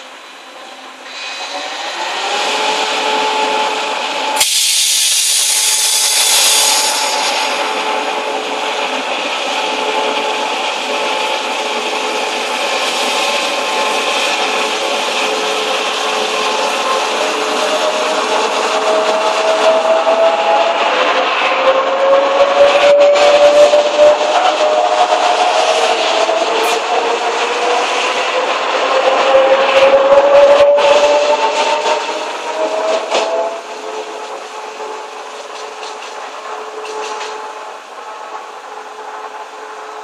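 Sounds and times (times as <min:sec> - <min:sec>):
train wheels and brakes squealing: 0:00.0 - 0:40.0
loud hiss of air: 0:01.0 - 0:03.6, 0:04.2 - 0:08.2.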